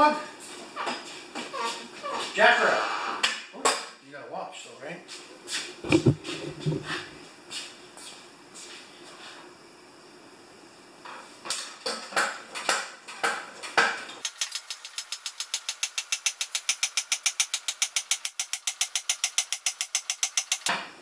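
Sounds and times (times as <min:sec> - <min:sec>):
lift table fast clicking: 0:14.2 - 0:20.7.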